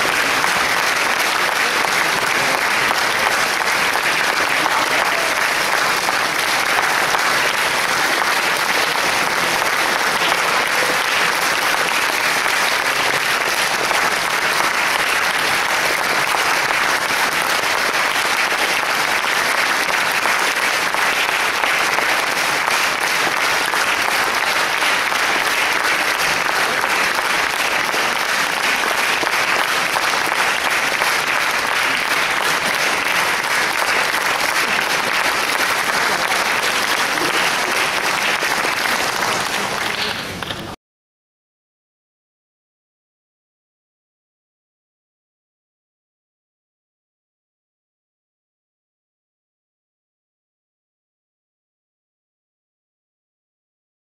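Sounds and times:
audience applauding: 0:00.0 - 0:40.8.

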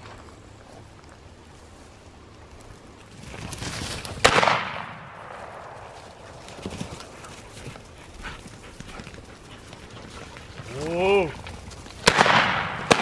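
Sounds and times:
shotgun shot: 0:04.2 - 0:05.4, 0:12.0 - 0:13.0.

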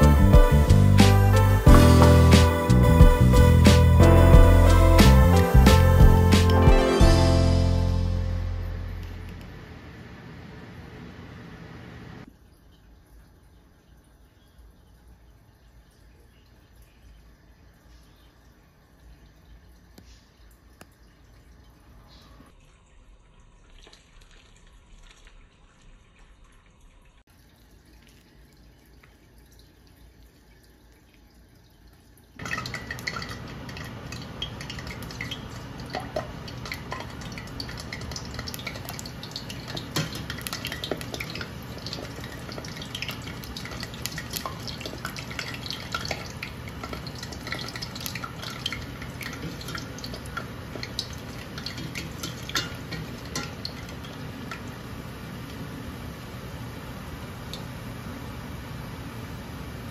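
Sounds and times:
faint low sound: 0:00.0 - 0:09.7
batter sizzling in hot oil: 0:32.4 - 0:57.2.

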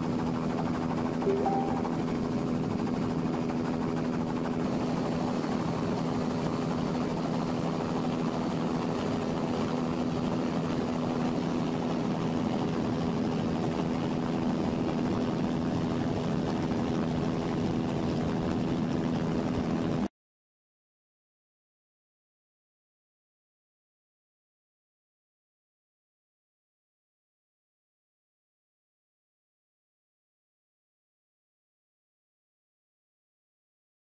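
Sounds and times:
helicopter engine and rotor: 0:00.0 - 0:20.1.

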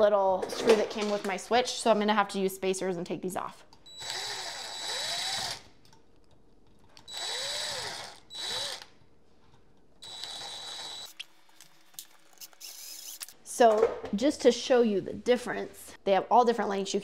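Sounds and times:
cordless drill running: 0:03.9 - 0:05.7, 0:07.0 - 0:08.9, 0:10.0 - 0:11.1.

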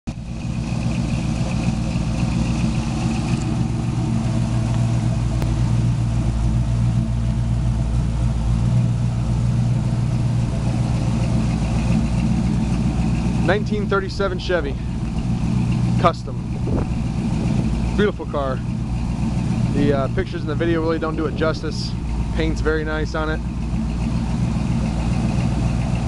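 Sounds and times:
car engine idling: 0:00.0 - 0:26.0.

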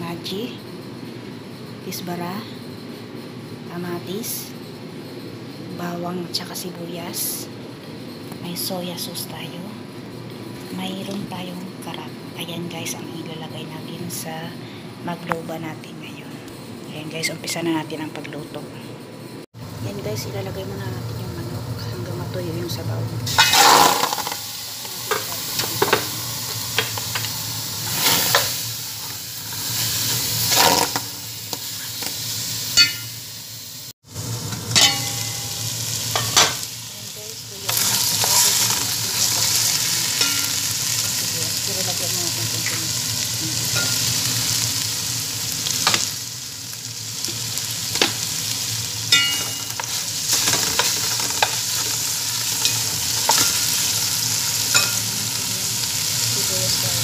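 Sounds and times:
chicken sizzling in a pot: 0:19.6 - 0:57.0.

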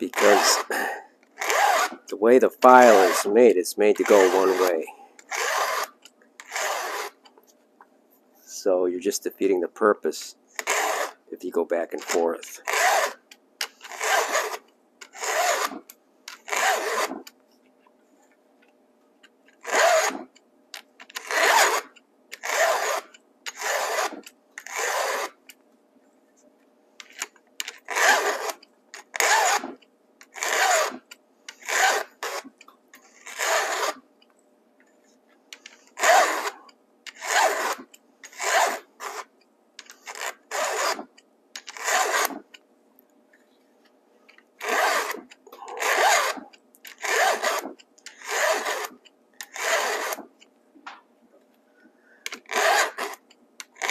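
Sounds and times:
files rasping on chainsaw chain: 0:00.1 - 0:07.2, 0:10.6 - 0:11.2, 0:12.0 - 0:13.2, 0:13.8 - 0:15.8, 0:16.5 - 0:17.2, 0:19.6 - 0:20.2, 0:21.2 - 0:25.3, 0:27.9 - 0:28.6, 0:29.2 - 0:29.7, 0:30.3 - 0:34.0, 0:35.7 - 0:39.3, 0:40.0 - 0:41.1, 0:41.7 - 0:42.4, 0:44.6 - 0:50.3, 0:52.3 - 0:53.2.

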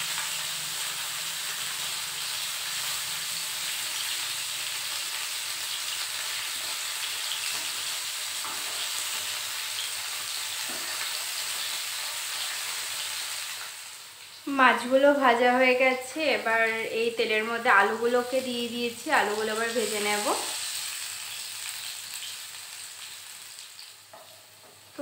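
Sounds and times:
fish sizzling in oil: 0:00.0 - 0:25.0.

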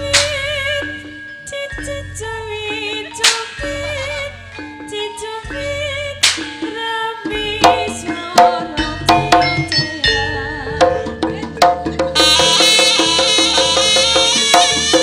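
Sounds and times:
ensemble music played live: 0:00.0 - 0:15.0
metallophone melody: 0:00.0 - 0:15.0
sharp hand-drum strokes: 0:10.8 - 0:15.0.

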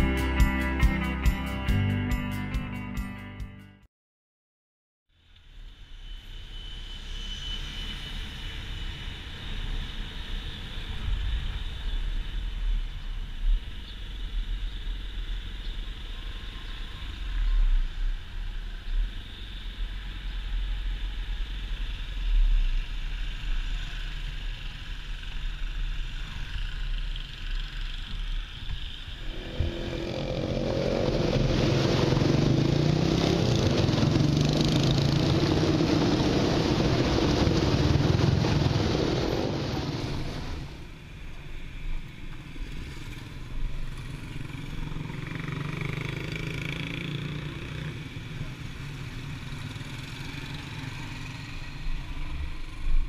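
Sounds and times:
wind buffeting microphone: 0:29.2 - 0:40.9.

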